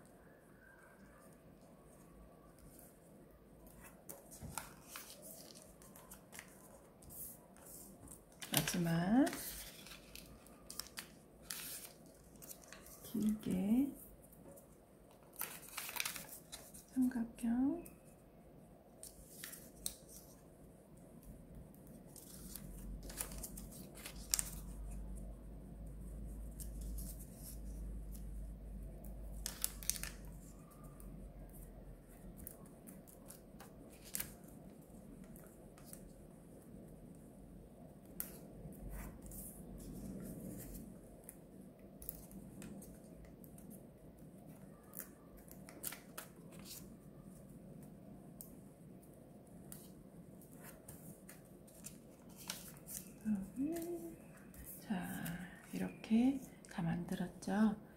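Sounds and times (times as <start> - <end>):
paper crackling and ticking: 3.6 - 17.1, 19.0 - 20.4, 21.2 - 25.3, 26.4 - 36.1, 38.0 - 48.6, 49.5 - 56.5
paper rustling on table: 3.7 - 13.6, 14.4 - 17.0, 19.0 - 20.4, 22.1 - 25.0, 29.4 - 30.8, 44.5 - 46.9, 49.7 - 55.8.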